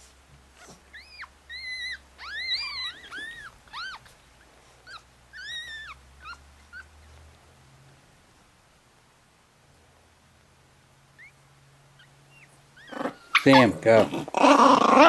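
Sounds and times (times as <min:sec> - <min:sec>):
puppies squealing: 0:00.6 - 0:07.0, 0:11.2 - 0:11.4, 0:12.0 - 0:15.0.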